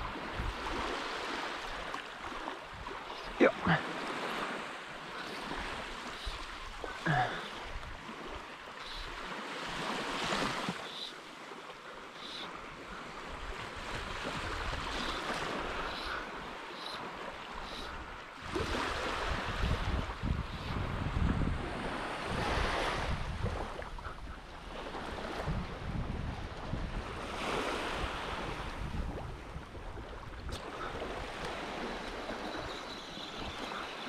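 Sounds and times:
wind on microphone: 0.0s - 1.9s, 18.0s - 33.9s
small waves lapping: 0.0s - 34.0s.

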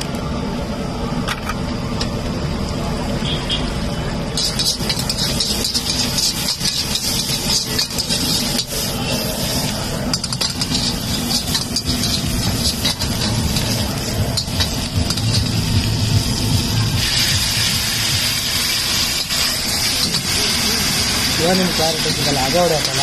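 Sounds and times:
stove flame rumble and hiss: 0.0s - 23.0s
metal ladle scraping iron pan: 4.4s - 15.5s.

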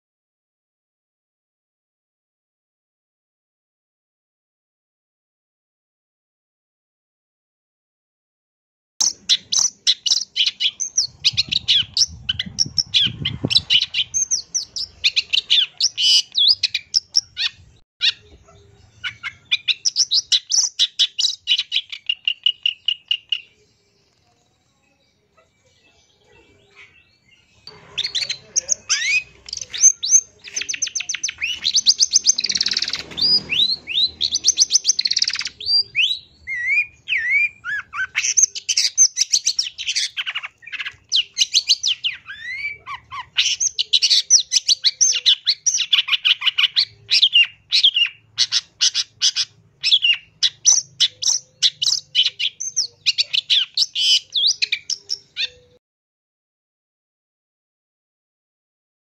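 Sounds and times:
bird chattering song: 9.0s - 55.8s.

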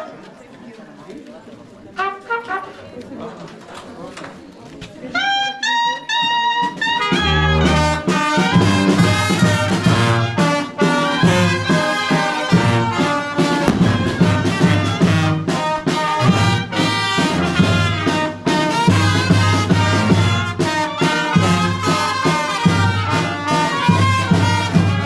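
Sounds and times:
brass band playing a march: 2.0s - 2.8s, 5.8s - 25.0s.

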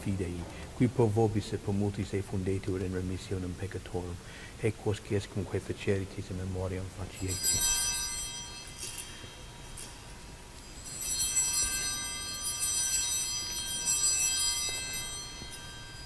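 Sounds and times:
altar bells ringing: 6.9s - 16.0s.

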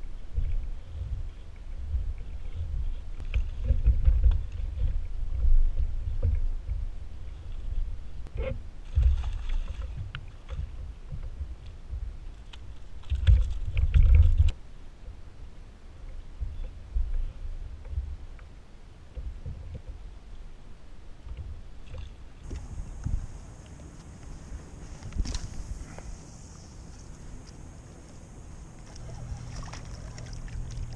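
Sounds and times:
water lapping at kayak hull: 0.2s - 14.5s, 21.2s - 30.9s
wind buffeting microphone: 22.4s - 30.9s
fish splashing into water: 28.8s - 30.9s.

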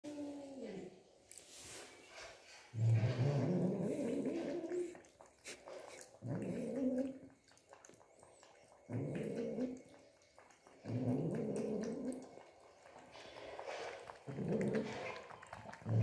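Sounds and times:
cat growling: 2.8s - 5.1s, 6.1s - 7.4s, 8.9s - 10.0s, 10.8s - 16.0s.

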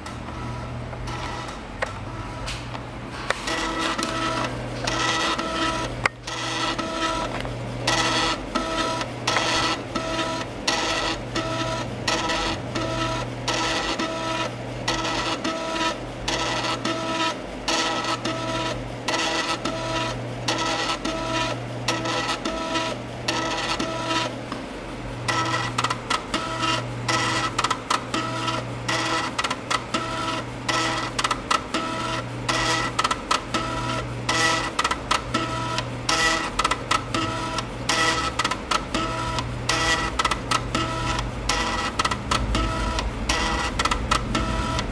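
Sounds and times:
low hum: 42.2s - 44.9s.

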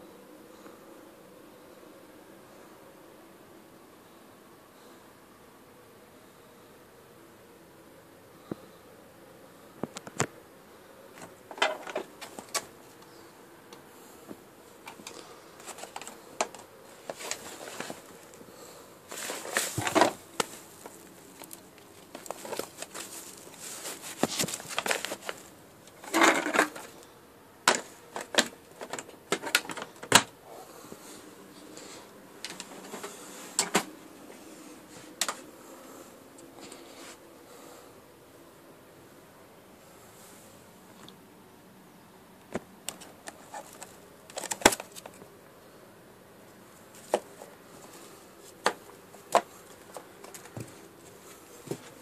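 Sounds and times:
vacuum cleaner plastic clicks and rattles: 27.7s - 30.3s, 42.9s - 45.2s.

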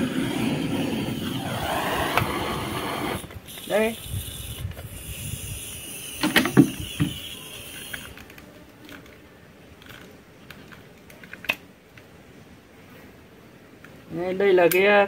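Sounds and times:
gas torch hissing: 0.0s - 8.2s.

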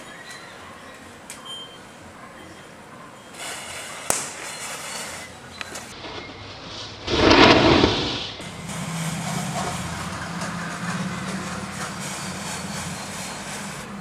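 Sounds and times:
firecracker hiss of sparks: 3.3s - 5.9s, 11.6s - 13.9s.

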